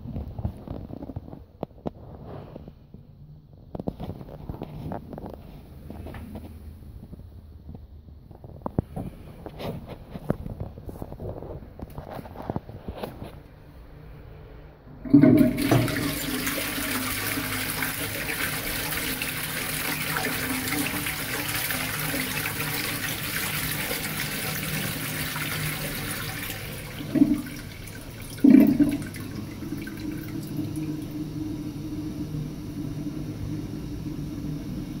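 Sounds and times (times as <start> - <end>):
toilet flushing: 15.0 - 35.0.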